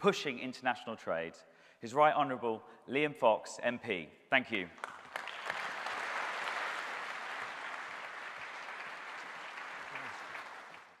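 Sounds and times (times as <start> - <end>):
large audience applauding: 4.8 - 11.0.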